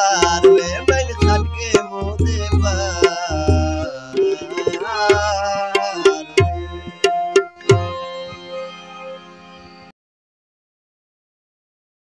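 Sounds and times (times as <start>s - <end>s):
harmonium sustained chord: 0.0s - 10.0s
tabla strokes: 0.2s - 8.1s.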